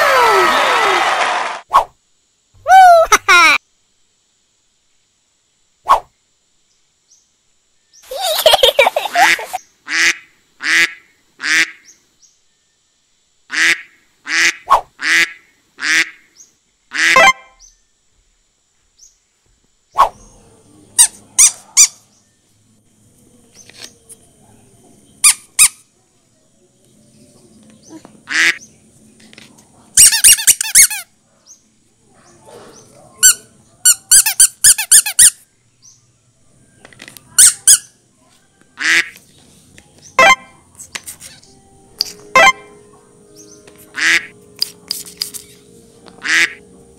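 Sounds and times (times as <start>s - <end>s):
rubber duck toy squeaks: 30.0s - 31.1s, 33.2s - 35.4s, 37.4s - 37.9s.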